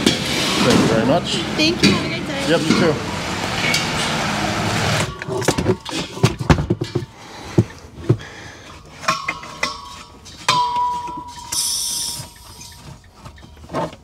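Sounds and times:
metal clinks and knocks: 0:05.0 - 0:14.0
metallic ringing tone: 0:09.0 - 0:13.6
short gas hiss: 0:11.5 - 0:12.5.

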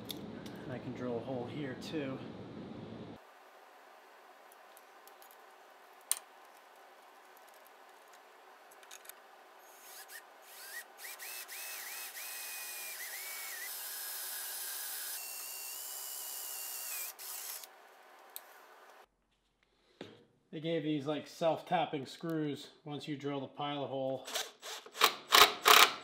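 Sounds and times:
cordless drill whining: 0:09.6 - 0:17.7.

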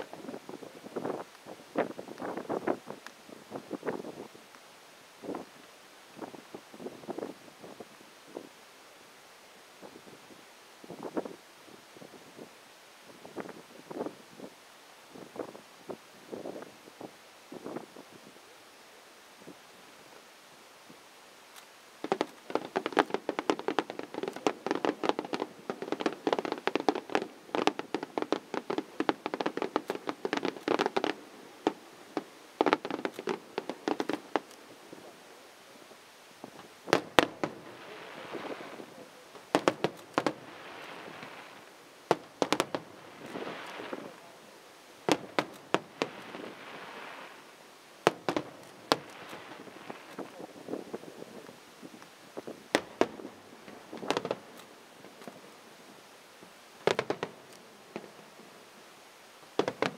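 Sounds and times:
fireworks hiss: 0:00.0 - 0:59.9
fireworks popping and banging: 0:21.5 - 0:35.1, 0:36.4 - 0:55.6, 0:56.8 - 0:58.4, 0:59.5 - 0:59.9.

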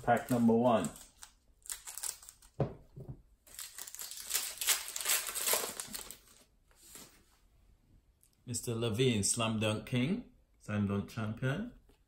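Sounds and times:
wrapper rustling: 0:00.0 - 0:02.6, 0:03.4 - 0:07.2
wrapper crinkling: 0:00.1 - 0:02.6, 0:03.4 - 0:07.0.

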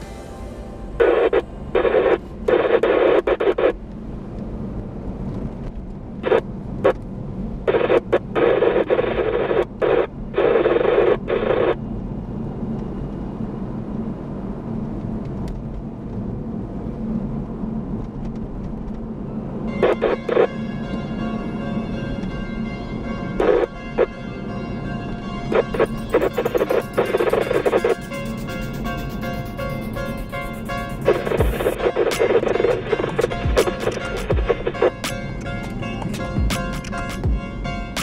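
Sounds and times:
car cabin road rumble: 0:00.0 - 0:38.0
radio transmission bursts: 0:00.9 - 0:03.8, 0:06.2 - 0:07.0, 0:07.7 - 0:11.8, 0:19.8 - 0:20.6, 0:23.4 - 0:24.1, 0:25.5 - 0:37.4.

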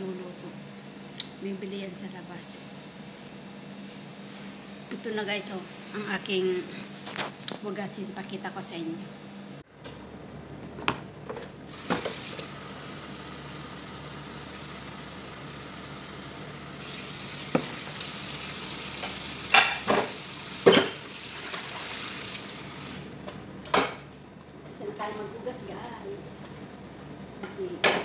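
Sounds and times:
tap running into sink: 0:17.5 - 0:17.8
dishes and pots clinking: 0:19.5 - 0:21.1.

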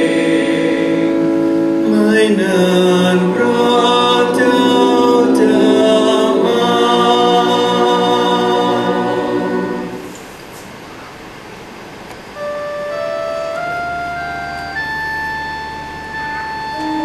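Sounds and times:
mixed choir singing: 0:00.0 - 0:10.2.

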